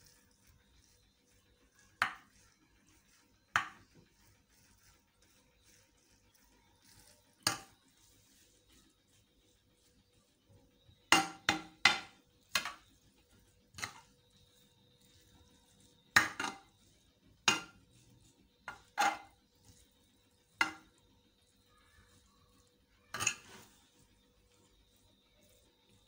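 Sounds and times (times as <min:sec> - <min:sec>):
clinks against an earthenware dish: 0:23.1 - 0:23.5.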